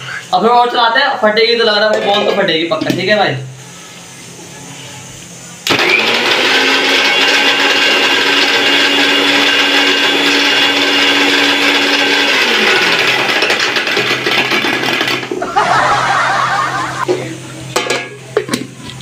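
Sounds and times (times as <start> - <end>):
mixer grinder motor running: 5.6 - 16.0.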